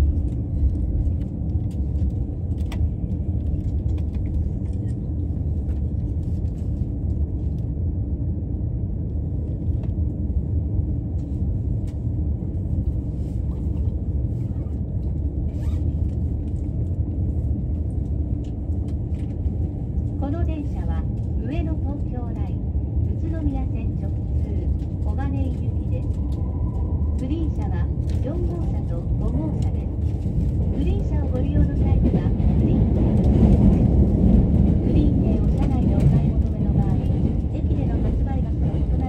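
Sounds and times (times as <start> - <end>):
electric train rumbling: 0.0 - 39.0.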